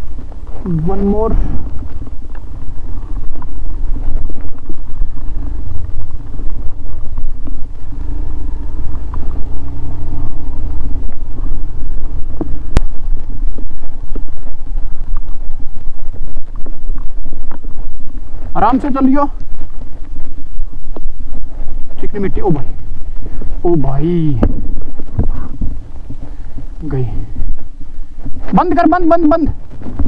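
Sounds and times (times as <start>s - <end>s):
motorcycle engine running: 0.0s - 30.0s
wind rumble on microphone: 0.0s - 30.0s.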